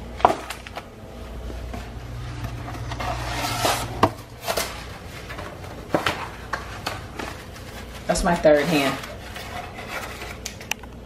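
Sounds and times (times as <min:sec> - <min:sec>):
low hum: 0:00.0 - 0:08.2.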